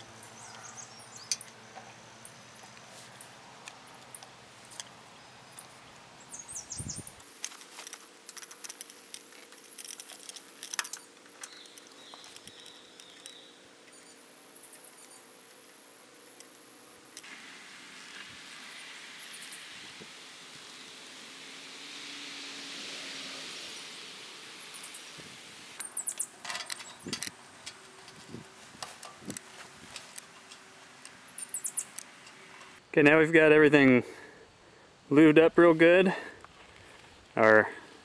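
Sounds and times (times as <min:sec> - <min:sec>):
grease gun metallic clicks: 0:07.4 - 0:13.4.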